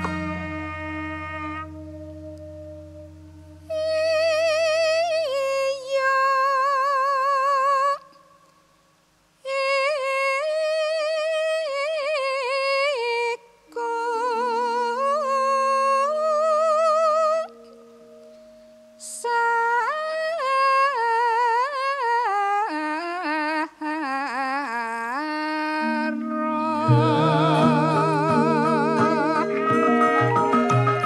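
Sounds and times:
low ringing bronze notes: 0:00.0 - 0:04.7, 0:25.8 - 0:31.0
melodic line with wavering vibrato: 0:00.0 - 0:05.5, 0:25.8 - 0:31.0.

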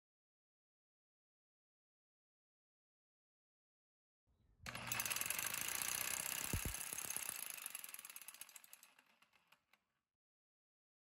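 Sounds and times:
test rig clicks: 0:04.7 - 0:09.3
fast metallic rattle: 0:04.7 - 0:09.6.

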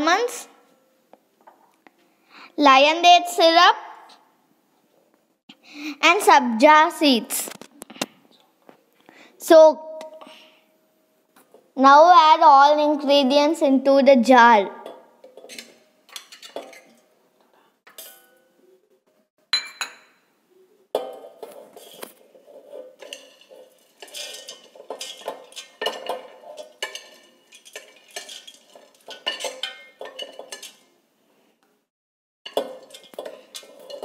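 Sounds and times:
metal utensil scraping plate: 0:21.0 - 0:30.9, 0:32.5 - 0:34.0.

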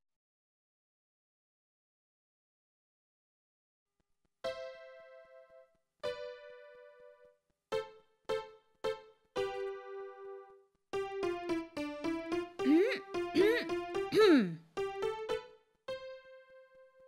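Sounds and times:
piano playing slow melody: 0:04.5 - 0:14.2, 0:14.8 - 0:17.0.

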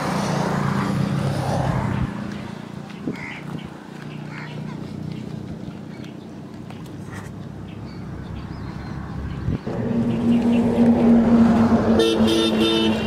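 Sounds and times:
horn beeps: 0:09.8 - 0:13.0.

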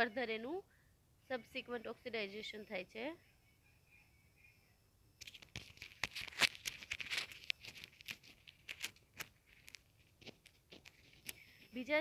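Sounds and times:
handling noise crackling: 0:05.2 - 0:11.8.

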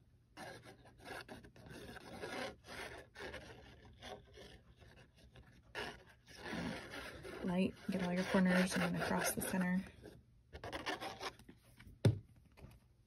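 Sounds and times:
glue nozzle scratching cardstock: 0:00.4 - 0:09.7, 0:10.6 - 0:11.4.

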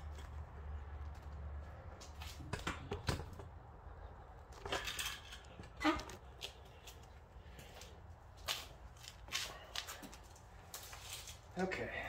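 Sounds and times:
handling clicks and rustles: 0:04.3 - 0:11.5.

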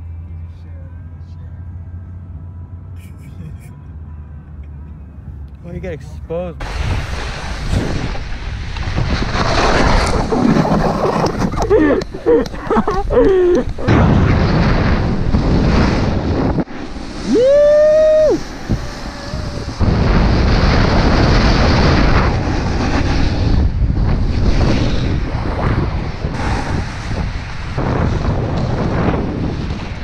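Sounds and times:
snowboard scraping on snow: 0:06.6 - 0:30.0
wind rushing over camera: 0:06.6 - 0:30.0
person yelling: 0:17.3 - 0:18.4.

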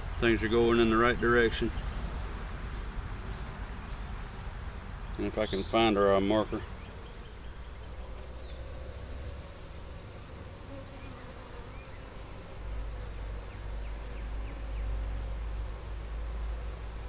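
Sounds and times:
honeybees humming: 0:00.0 - 0:17.0.

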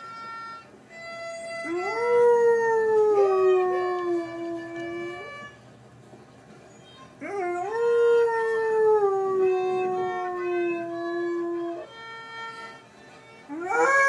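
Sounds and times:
dog howling: 0:07.2 - 0:11.9, 0:13.5 - 0:14.0.

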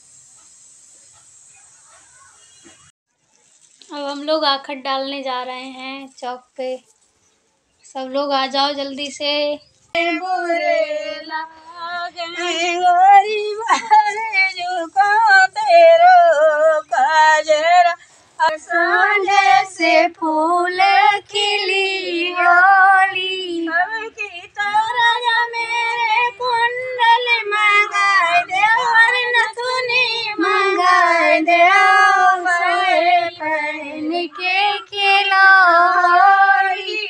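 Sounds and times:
woman singing unaccompanied: 0:08.0 - 0:37.0.

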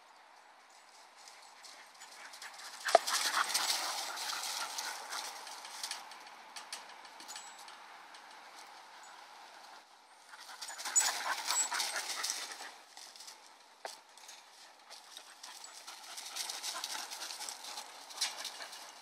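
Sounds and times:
dogs scuffling: 0:00.8 - 0:19.0
dogs panting: 0:01.2 - 0:06.2, 0:09.6 - 0:13.4, 0:14.6 - 0:19.0.

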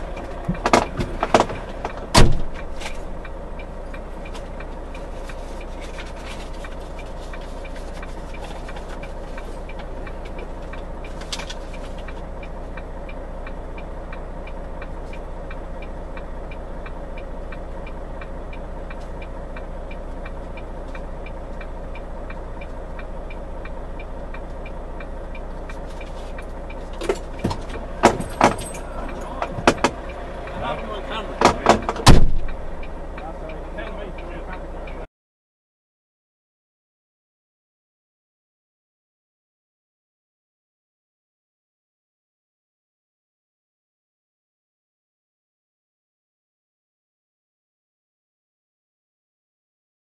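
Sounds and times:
car engine idling: 0:00.0 - 0:35.1
soft ticking: 0:12.0 - 0:27.0.

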